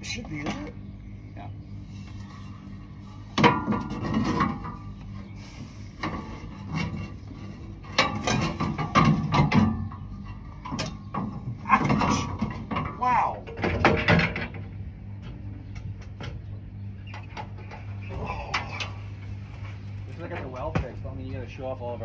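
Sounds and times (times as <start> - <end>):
steady low hum: 0.0 - 22.0
sheet metal clanking and scraping: 3.2 - 5.0, 6.0 - 14.8.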